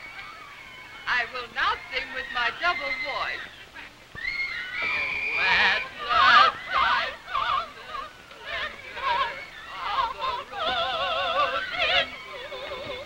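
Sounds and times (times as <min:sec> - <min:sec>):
woman singing opera: 0:05.4 - 0:13.0.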